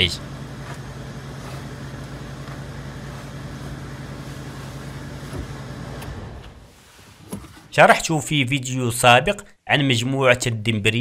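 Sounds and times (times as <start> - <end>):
car engine idling: 0.0 - 6.8.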